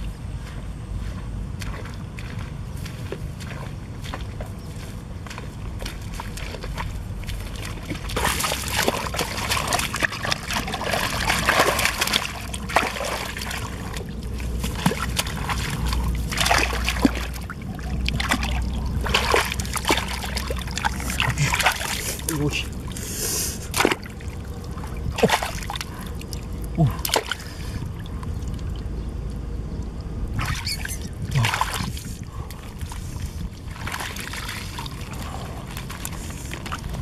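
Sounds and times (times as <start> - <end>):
hands splashing in muddy water: 1.6 - 28.7, 30.4 - 37.0
wet slaps and sloshes: 5.3 - 22.9, 23.6 - 27.8, 30.4 - 37.0.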